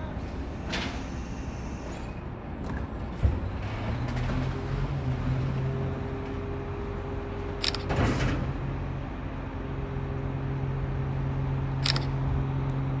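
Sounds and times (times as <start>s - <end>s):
camera shutter clicks: 11.8s - 12.2s.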